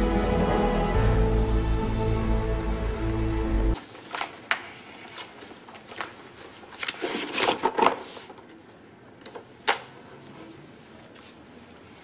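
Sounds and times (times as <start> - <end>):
paper rustling: 3.8 - 8.4.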